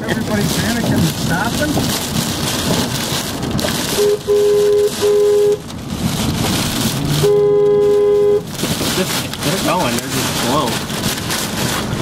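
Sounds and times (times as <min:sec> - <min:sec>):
rain drumming on vehicle: 0:00.0 - 0:12.0
car horn honking: 0:03.9 - 0:05.6, 0:07.1 - 0:08.6.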